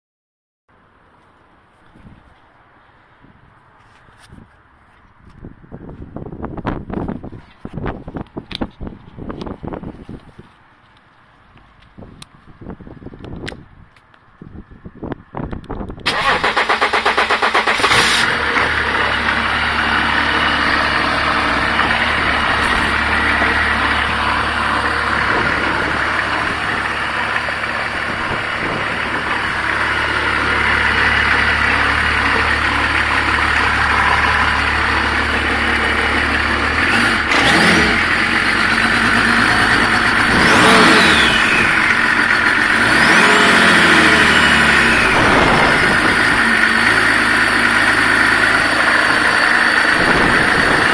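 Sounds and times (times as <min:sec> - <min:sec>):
diesel engine idling and revving: 0:14.8 - 0:50.9.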